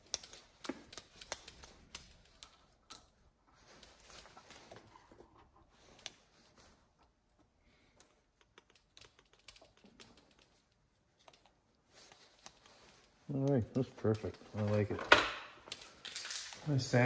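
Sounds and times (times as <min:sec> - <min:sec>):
small metal parts clicking: 0:00.0 - 0:03.2, 0:08.0 - 0:11.5, 0:15.7 - 0:16.7.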